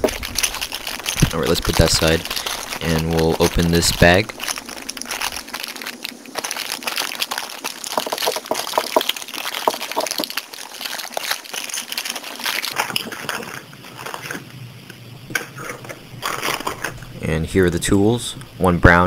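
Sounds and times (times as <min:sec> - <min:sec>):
plastic bag crinkling: 0:00.0 - 0:14.6, 0:15.6 - 0:17.2.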